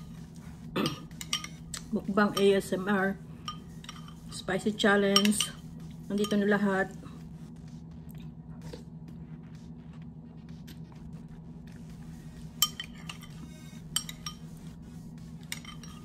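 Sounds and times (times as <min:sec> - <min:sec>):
steady low hum: 0:00.0 - 0:16.0
spoon clinking against bowl: 0:01.1 - 0:02.6, 0:03.4 - 0:04.2, 0:05.1 - 0:06.5, 0:12.6 - 0:14.5, 0:15.4 - 0:16.0.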